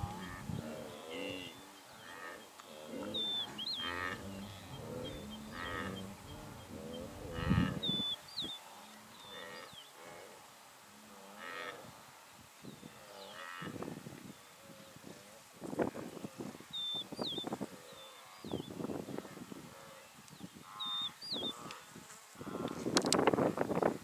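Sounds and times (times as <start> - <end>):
small birds chirping: 0.0 - 10.0, 15.7 - 23.1
large grazing animal calling: 0.0 - 10.2, 20.7 - 22.8.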